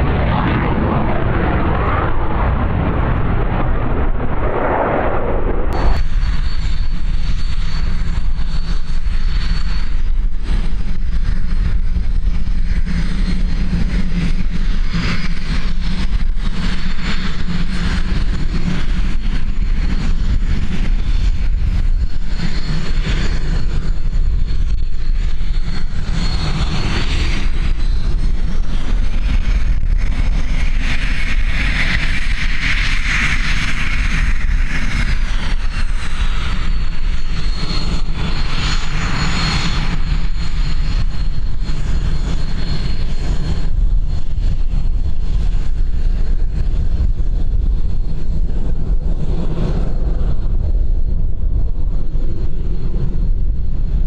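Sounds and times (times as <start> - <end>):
jet turbine whine: 0.0 - 54.0
low jet engine rumble: 0.0 - 54.0.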